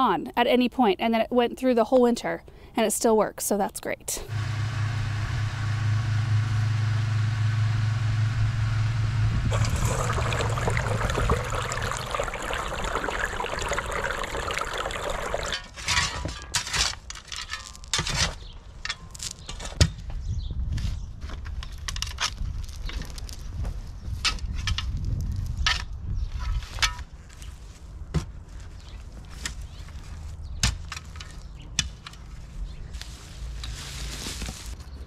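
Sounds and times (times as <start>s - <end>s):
pump humming: 4.3s - 15.6s
water gushing and splashing: 9.5s - 15.7s.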